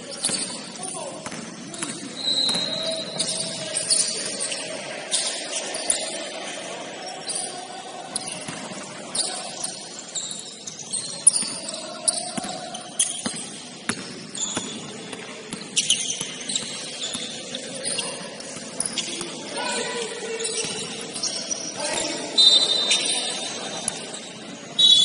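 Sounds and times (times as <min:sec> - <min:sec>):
players' voices: 0:00.0 - 0:25.0
sneakers squeaking on court: 0:00.0 - 0:25.0
basketball bouncing: 0:12.3 - 0:17.3.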